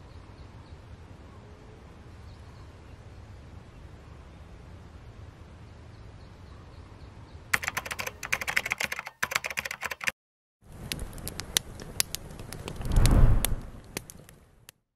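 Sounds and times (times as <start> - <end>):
low outdoor background: 0.0 - 14.8
rapid keyboard keystroke clicks: 7.6 - 10.2
low swell: 12.8 - 13.8.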